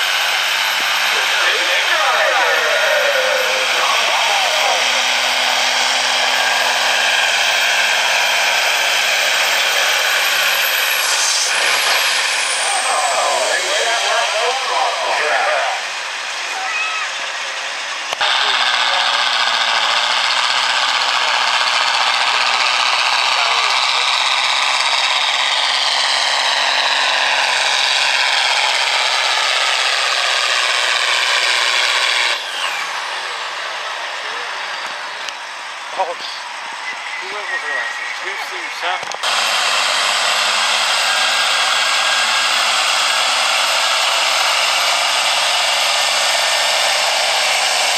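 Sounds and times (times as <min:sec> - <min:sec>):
diesel engine roaring: 0:00.0 - 0:47.9
high whine winding down: 0:00.0 - 0:47.9
high whine falling in pitch: 0:00.8 - 0:16.3.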